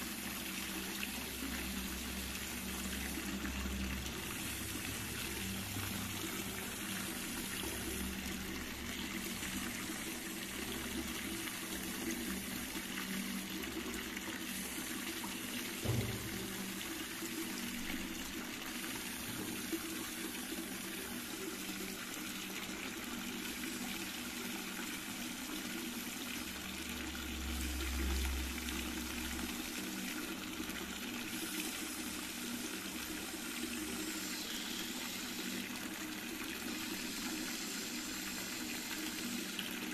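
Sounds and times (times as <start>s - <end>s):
water against embankment: 0.0s - 23.1s
single knock: 15.8s - 16.6s.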